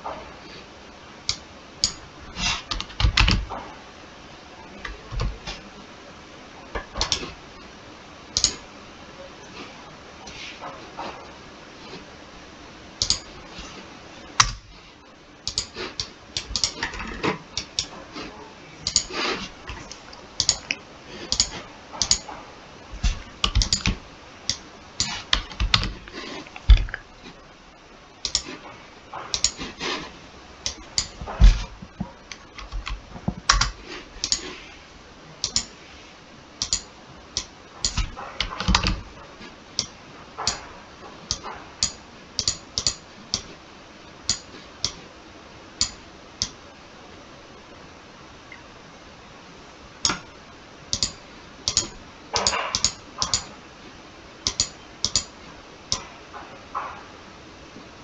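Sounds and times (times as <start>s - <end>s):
computer keyboard typing: 2.6s - 3.6s, 6.8s - 7.3s, 8.3s - 8.6s, 13.0s - 13.4s, 15.4s - 16.9s, 18.8s - 19.1s, 19.7s - 22.3s, 23.0s - 27.0s, 28.2s - 28.6s, 29.3s - 29.6s, 32.3s - 34.5s, 35.4s - 35.7s, 36.6s - 39.1s, 39.8s - 40.7s, 41.3s - 43.5s, 50.9s - 53.5s, 54.4s - 55.3s.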